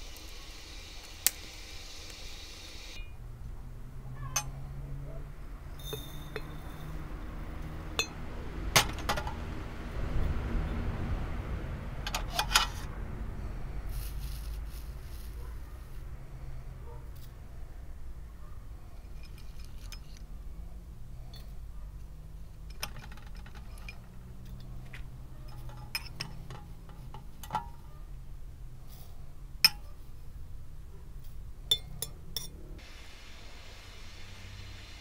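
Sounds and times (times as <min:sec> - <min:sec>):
dishes and utensils clinking: 0:04.2 - 0:04.6, 0:05.8 - 0:07.0, 0:08.0 - 0:08.2, 0:25.4 - 0:27.8, 0:31.7 - 0:32.6
steady low rumble: 0:12.8 - 0:19.2.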